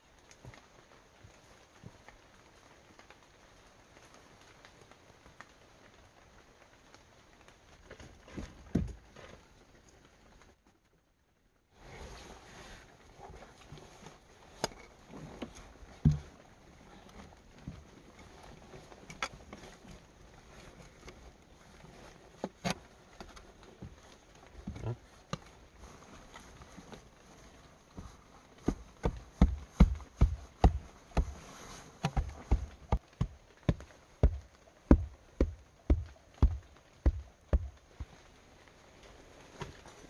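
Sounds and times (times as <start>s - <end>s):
spade scraping and chopping soil: 28.7s - 37.8s.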